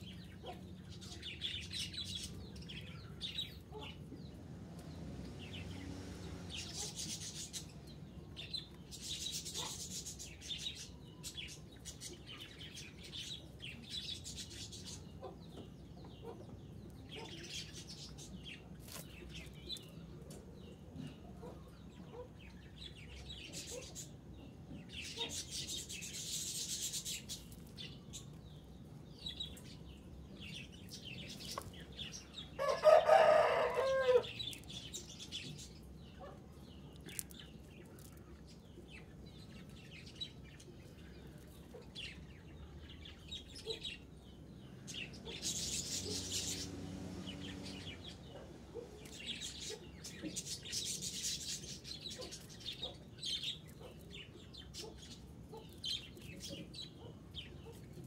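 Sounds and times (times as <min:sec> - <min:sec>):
rooster crowing: 0:32.6 - 0:34.4.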